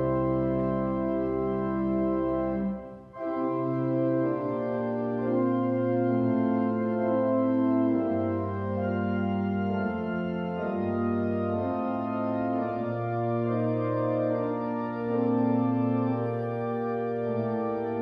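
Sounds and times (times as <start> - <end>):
church organ playing chords: 0.0 - 18.0.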